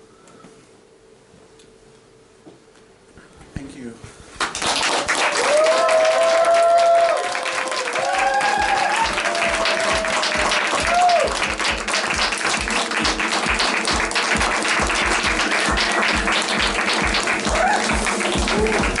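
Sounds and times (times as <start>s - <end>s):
audience applauding and cheering: 4.4s - 19.0s
whoops: 5.2s - 11.6s, 17.4s - 19.0s
music with fast steady beat: 8.4s - 19.0s.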